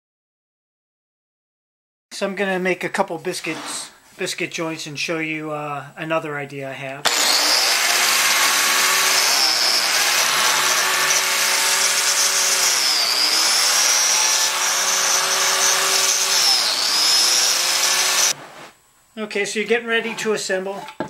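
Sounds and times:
biscuit joiner motor whining: 7.0s - 18.4s.

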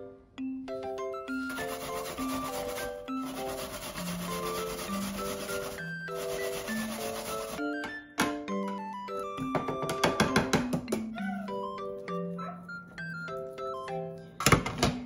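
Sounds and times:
rubbing or scraping noise: 1.4s - 7.7s.

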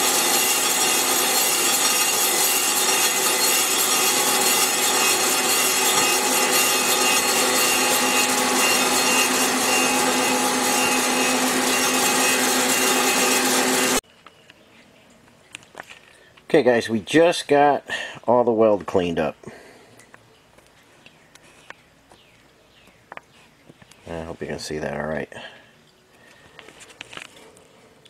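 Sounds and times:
grinding wheel hiss: 0.0s - 14.0s
machine hum: 0.0s - 14.0s.

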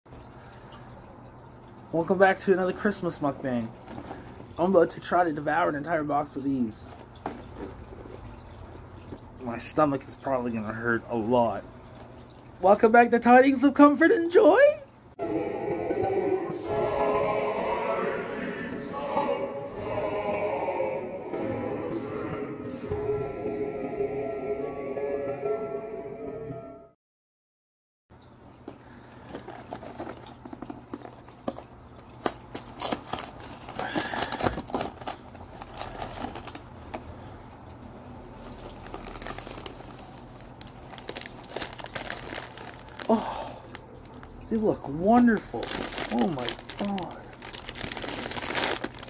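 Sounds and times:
cardboard and plastic crinkling: 2.6s - 5.6s, 6.5s - 9.6s, 29.1s - 37.1s, 38.4s - 49.0s
choir singing held notes: 15.2s - 26.1s.

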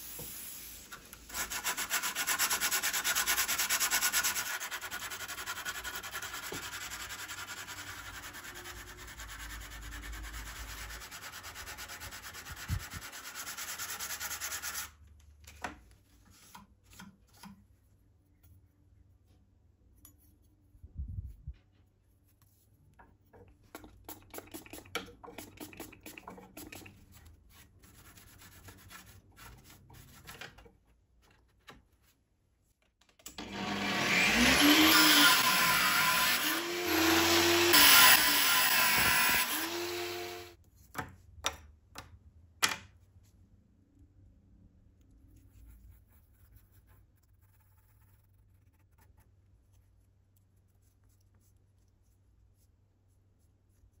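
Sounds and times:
angle grinder cutting rod: 33.4s - 40.5s.

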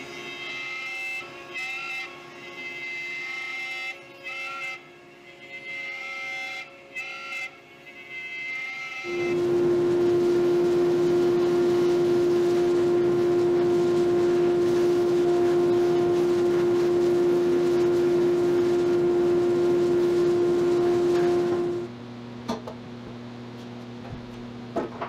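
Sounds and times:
electric router motor running: 9.0s - 21.9s.

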